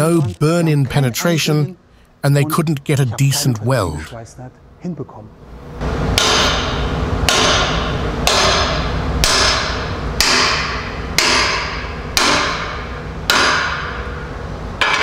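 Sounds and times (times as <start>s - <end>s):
hammer striking metal: 6.2s - 14.1s, 14.8s - 15.0s.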